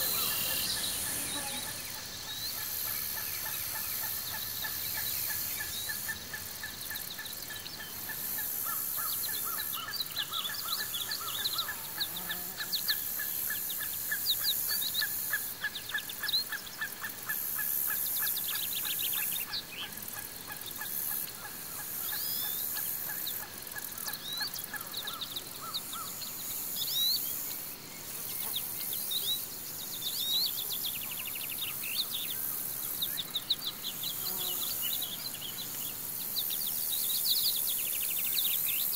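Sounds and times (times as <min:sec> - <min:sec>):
birds chirping: 0:00.0 - 0:15.1
insect hiss: 0:00.0 - 0:38.9.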